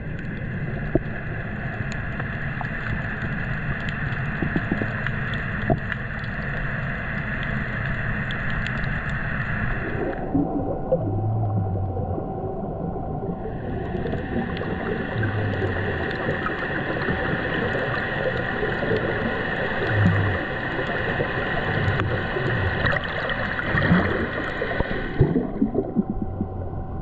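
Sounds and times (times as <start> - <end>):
low hum: 0.0 - 27.0
underwater rushing gurgling water: 0.0 - 27.0.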